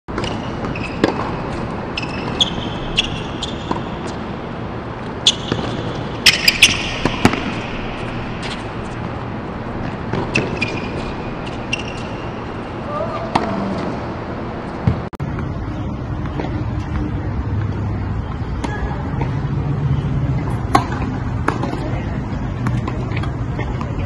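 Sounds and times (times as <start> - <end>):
ball bouncing: 0.1 - 4.2, 5.3 - 9.2, 9.8 - 12.4, 14.8 - 15.6
racket striking tennis ball: 0.1 - 4.3, 5.2 - 9.2, 9.8 - 12.4, 13.2 - 14.0
shoes squeaking on court: 0.1 - 4.4, 5.0 - 17.1.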